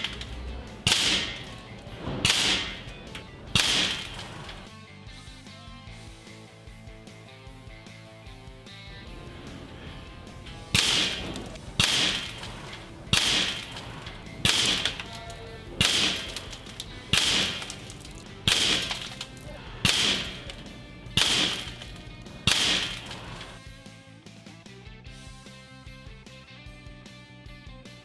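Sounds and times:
air pistol shots: 0:00.0 - 0:04.7, 0:09.4 - 0:23.6
background music: 0:00.0 - 0:28.0.

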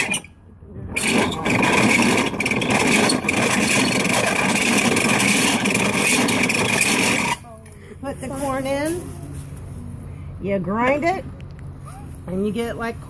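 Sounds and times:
hand-cranked grain mill grinding: 0:00.0 - 0:00.3, 0:01.0 - 0:07.5.

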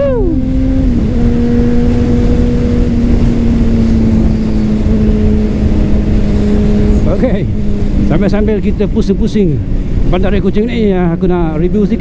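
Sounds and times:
motorcycle engine cruising: 0:00.0 - 0:12.0
wind rush: 0:00.0 - 0:12.0.

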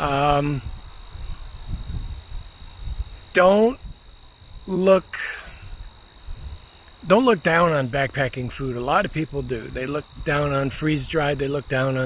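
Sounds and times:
man making short voiced sounds: 0:00.0 - 0:00.7
wind rumble on microphone: 0:00.0 - 0:04.7, 0:05.5 - 0:06.8, 0:08.1 - 0:12.0
insects trilling: 0:00.0 - 0:12.0.

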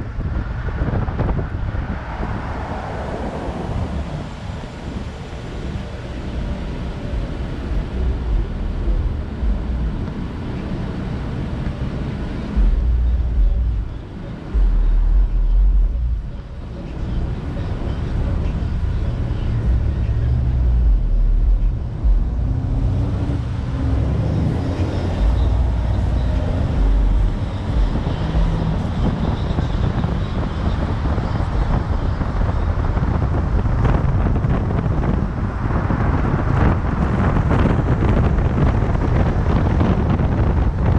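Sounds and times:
city road traffic: 0:00.0 - 0:40.9
wind buffeting microphone: 0:00.0 - 0:40.9.

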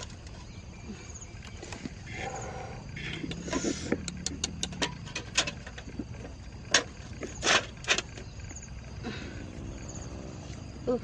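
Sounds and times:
bamboo trap clicking and rattling: 0:03.1 - 0:08.2.

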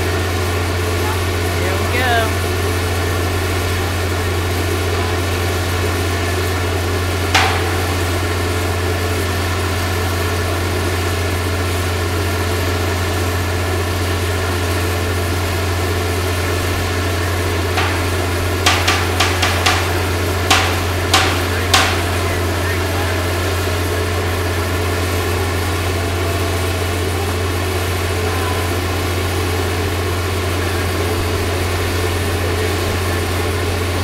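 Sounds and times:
diesel engine droning: 0:00.0 - 0:34.0
sharp knocks: 0:07.3 - 0:09.2, 0:16.5 - 0:22.6.

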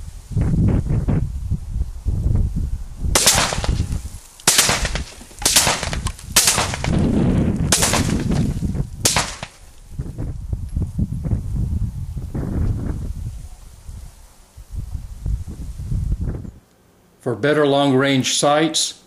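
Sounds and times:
machine gun firing: 0:03.2 - 0:07.1, 0:07.7 - 0:08.5, 0:09.1 - 0:09.6.

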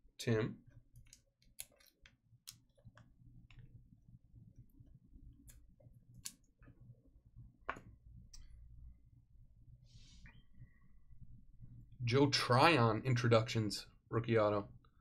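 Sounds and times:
low steady hum: 0:00.0 - 0:15.0
faint clicks and taps: 0:00.7 - 0:03.8.

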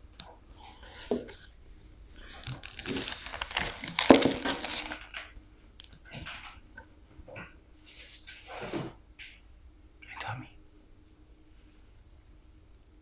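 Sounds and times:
rustling: 0:00.7 - 0:05.4.

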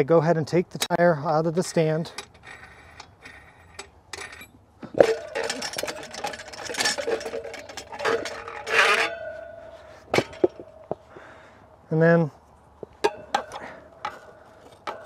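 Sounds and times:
metal clinks and knocks: 0:02.1 - 0:11.1, 0:12.8 - 0:15.0
ringing metal tone: 0:02.2 - 0:11.1
rubber tire scraping: 0:02.3 - 0:11.1.

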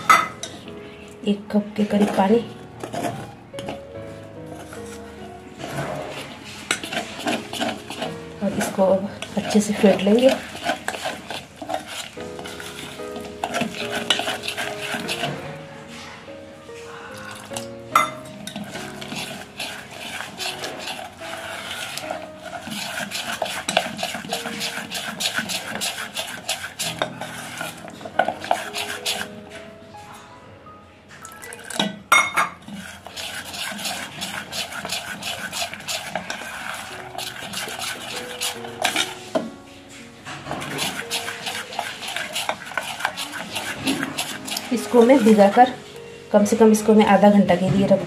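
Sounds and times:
spoon beating batter in steel bowl: 0:05.6 - 0:15.9, 0:17.2 - 0:29.4, 0:31.2 - 0:45.8.

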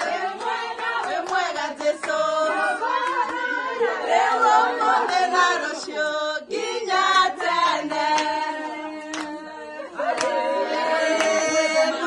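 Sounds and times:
women singing together: 0:00.0 - 0:12.0
sharp hand claps: 0:09.1 - 0:09.4, 0:10.2 - 0:10.4.

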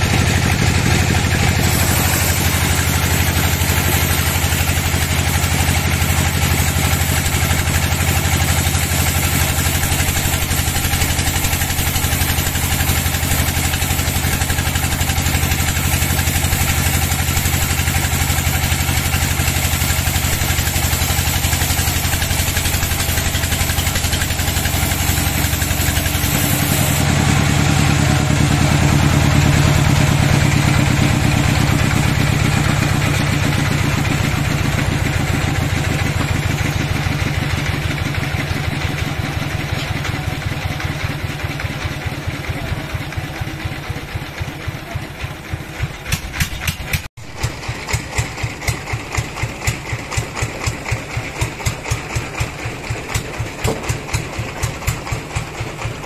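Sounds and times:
band saw cutting wood: 0:00.0 - 0:41.9.

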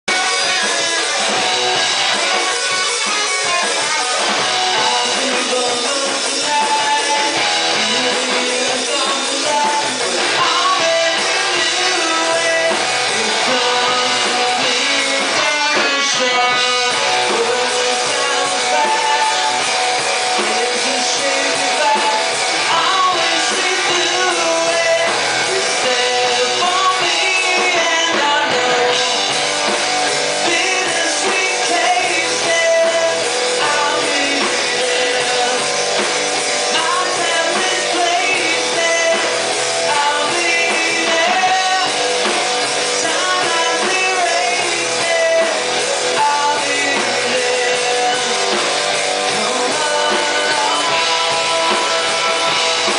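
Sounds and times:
distorted electric guitar: 0:00.0 - 0:52.9
drum kit: 0:00.0 - 0:52.9
electric bass: 0:00.0 - 0:52.9
man singing: 0:00.1 - 0:52.9.

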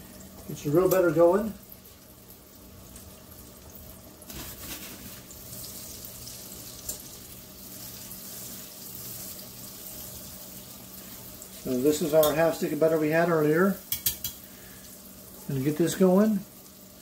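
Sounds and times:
butter sizzling in a pan: 0:00.0 - 0:17.0
whisk clicking against pan: 0:13.9 - 0:14.4.

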